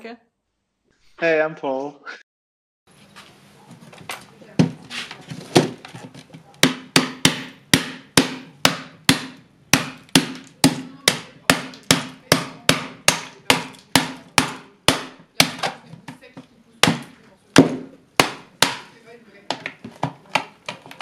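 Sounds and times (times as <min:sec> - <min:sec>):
hammer hitting plastic: 0:04.6 - 0:21.0.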